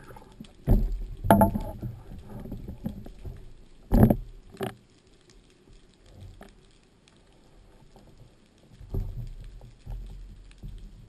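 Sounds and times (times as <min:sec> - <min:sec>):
faint water noise: 0:00.0 - 0:11.0
small clicks underwater: 0:00.0 - 0:11.0
underwater knocks: 0:00.6 - 0:03.0.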